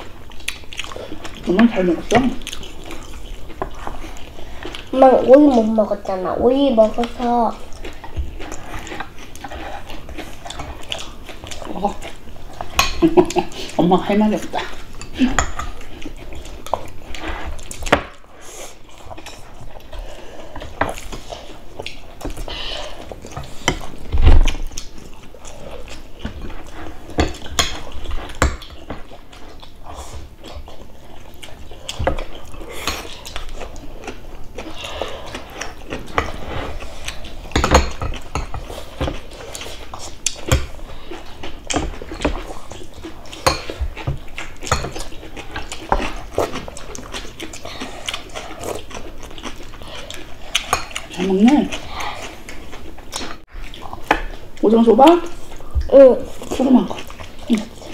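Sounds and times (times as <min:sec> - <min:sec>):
chopsticks and spoons clicking on bowls: 0:08.4 - 0:13.6, 0:26.2 - 0:29.0, 0:35.3 - 0:47.2, 0:50.5 - 0:51.8.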